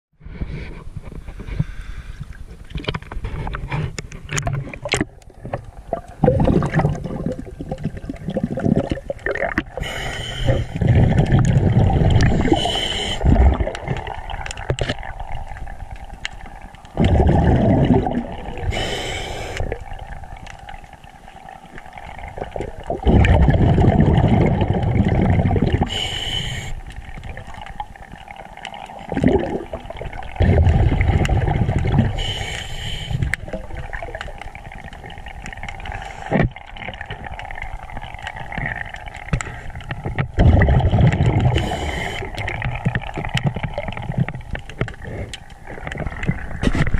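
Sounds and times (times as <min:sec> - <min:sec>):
water splashing: 0:04.2 - 0:46.9
gurgling rush of exhaled bubbles: 0:04.3 - 0:46.9
regulator inhalation hiss: 0:09.8 - 0:10.8, 0:12.4 - 0:13.3, 0:18.7 - 0:19.8, 0:25.9 - 0:26.8, 0:32.2 - 0:33.3, 0:41.6 - 0:42.3.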